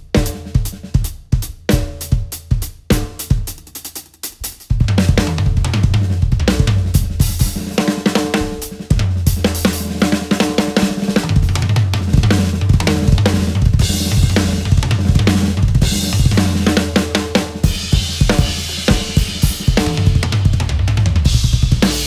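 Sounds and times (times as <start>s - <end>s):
drum kit solo: 0.0s - 22.0s.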